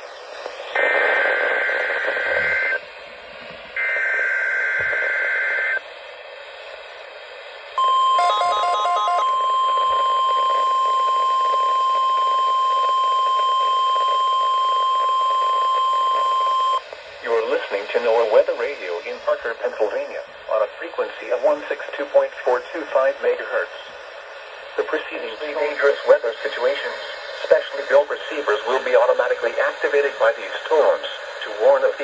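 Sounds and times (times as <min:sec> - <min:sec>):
pulsing beep: 0:07.8 - 0:16.8
steady warning alarm tone: 0:07.8 - 0:16.8.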